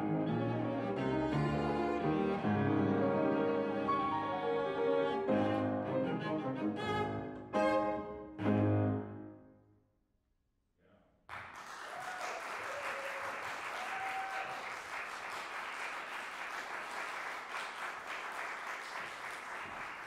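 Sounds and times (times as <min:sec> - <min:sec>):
audience applause: 0:11.3 - 0:20.0.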